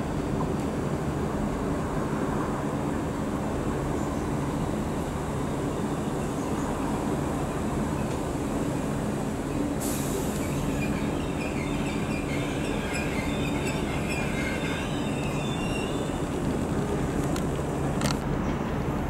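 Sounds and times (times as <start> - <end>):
electric train humming: 0.0 - 18.2
short hiss: 9.8 - 10.6
wheel squeal: 10.1 - 16.6.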